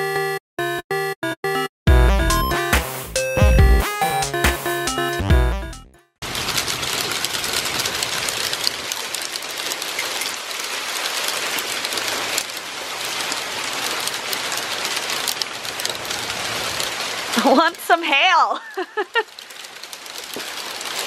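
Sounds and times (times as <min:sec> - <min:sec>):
hailstones pelting down: 0:06.2 - 0:21.0.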